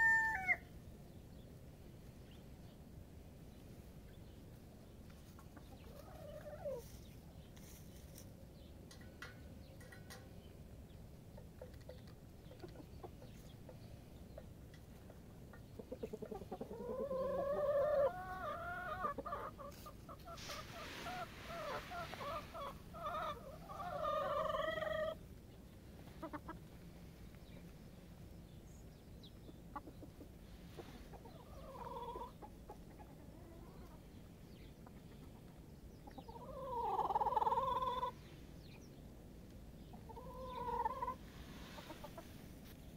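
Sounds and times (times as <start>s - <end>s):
chickens clucking: 1.5s - 42.9s.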